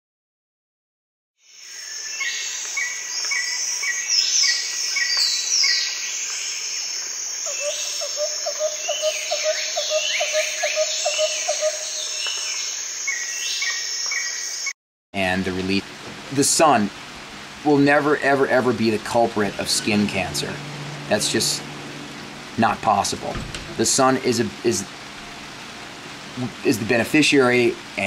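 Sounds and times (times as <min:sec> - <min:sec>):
birdsong chorus: 0:01.5 - 0:14.7.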